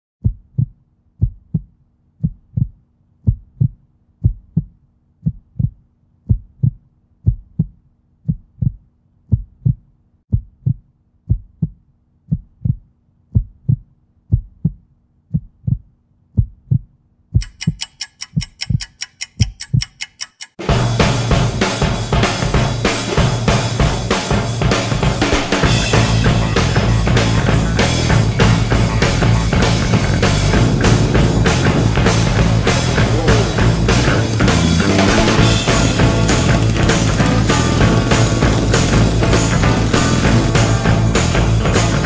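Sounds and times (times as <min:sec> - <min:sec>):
heartbeat double thumps: 0:00.2 - 0:17.6, 0:22.2 - 0:42.0
fast clicking: 0:17.4 - 0:20.6, 0:27.8 - 0:40.8.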